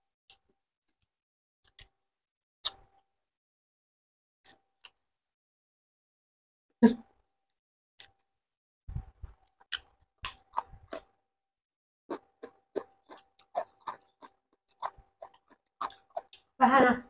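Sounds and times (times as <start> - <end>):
chewing and crunching: 9.0 - 11.2, 12.1 - 16.6.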